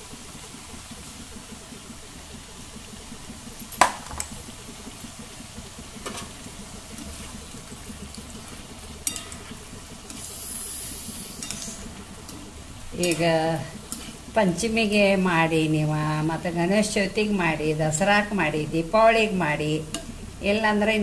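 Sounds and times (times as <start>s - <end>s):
dough sizzling in hot oil: 0.0s - 21.0s
metal spoon stirring oil: 6.0s - 14.7s, 19.9s - 20.2s.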